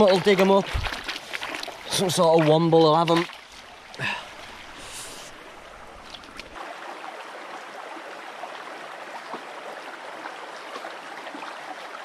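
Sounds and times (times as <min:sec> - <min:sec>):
stream flowing over stones: 0:00.0 - 0:12.0.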